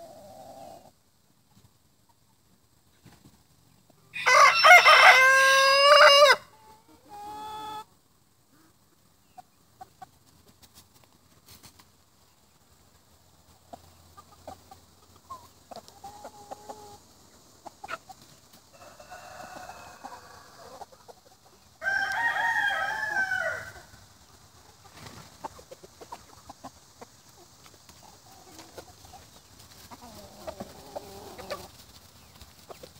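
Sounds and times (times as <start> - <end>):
chickens clucking: 0.0 - 32.9
rooster crowing: 4.1 - 6.6, 18.7 - 20.8, 21.8 - 23.9.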